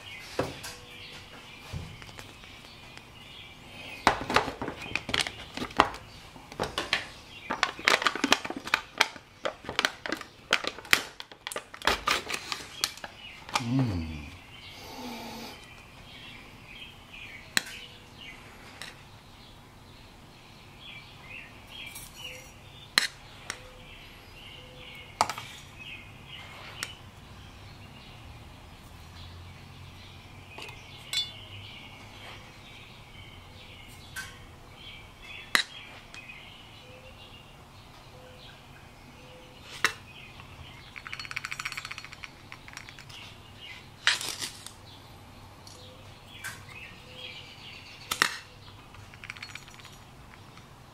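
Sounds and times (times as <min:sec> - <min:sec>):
metal spoon clinking on metal: 0:31.1 - 0:31.4.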